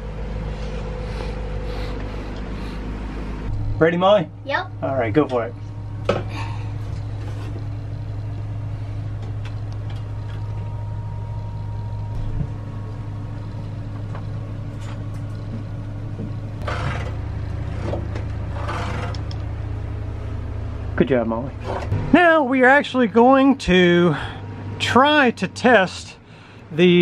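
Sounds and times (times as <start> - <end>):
low mechanical hum: 0.0 - 27.0
faint scraping handling noises: 6.9 - 8.3.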